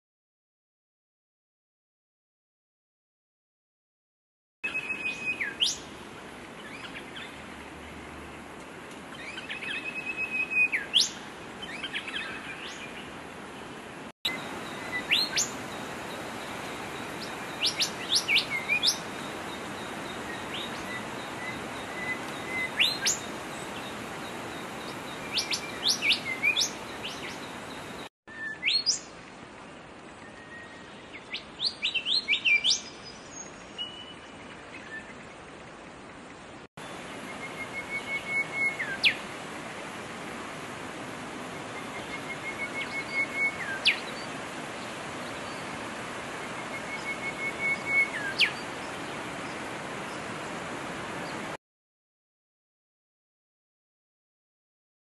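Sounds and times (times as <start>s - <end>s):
bird whistling song: 4.7s - 5.8s, 9.2s - 12.8s, 14.6s - 15.5s, 17.6s - 19.0s, 19.8s - 23.9s, 28.3s - 29.0s, 30.2s - 34.2s, 37.3s - 39.2s, 41.8s - 44.3s, 46.5s - 48.6s.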